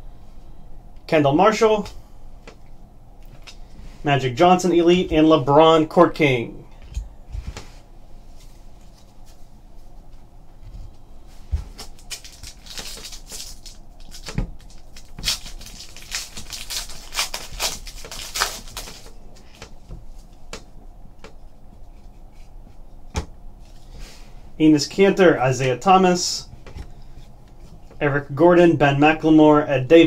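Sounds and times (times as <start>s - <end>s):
card wrapper crinkling and tearing: 11.8s - 19.2s.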